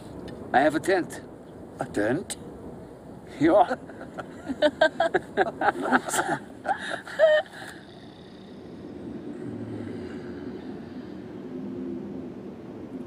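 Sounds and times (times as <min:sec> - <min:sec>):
steady low drone: 0:00.0 - 0:13.0
people laughing: 0:03.6 - 0:07.7.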